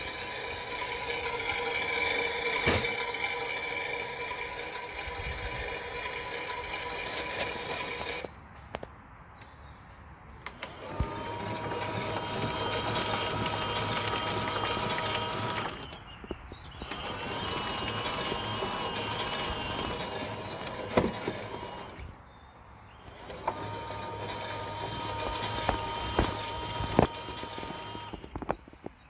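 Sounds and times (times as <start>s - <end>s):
toy washing machine motor whining: 0.0s - 8.3s, 10.6s - 16.0s, 16.8s - 22.2s, 23.0s - 28.4s.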